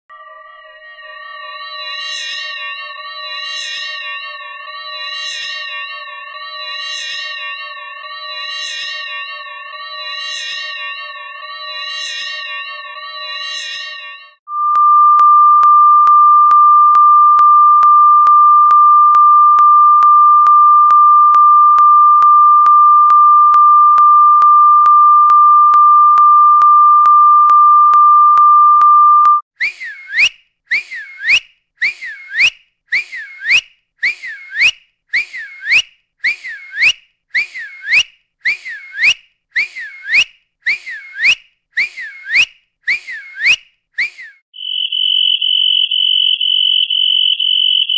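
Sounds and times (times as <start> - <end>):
whistle-like electronic chirps: 13.2 - 47.9
high-pitched electronic tone: 14.5 - 29.4.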